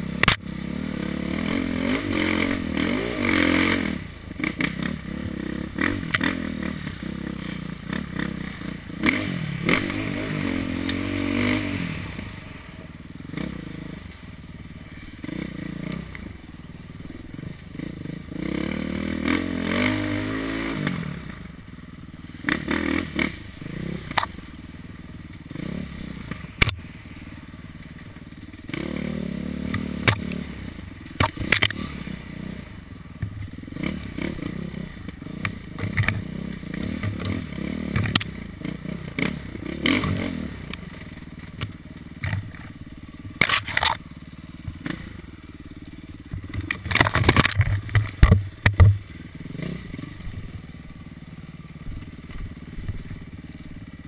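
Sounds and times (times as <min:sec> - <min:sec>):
dirt bike engine revving: 0:00.0 - 0:54.0
sharp knocks and rattles: 0:46.3 - 0:49.1.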